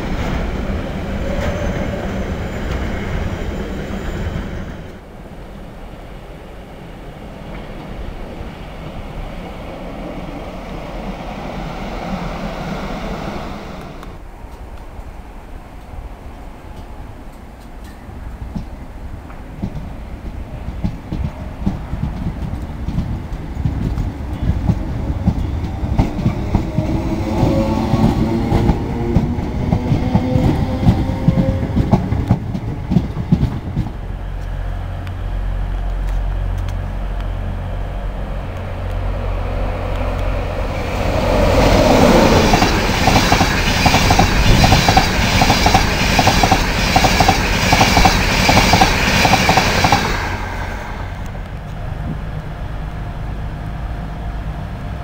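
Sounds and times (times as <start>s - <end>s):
train wheels clickety-clack: 16.7s - 34.6s, 39.9s - 51.8s
train wheels clattering: 17.6s - 34.5s, 40.0s - 51.4s.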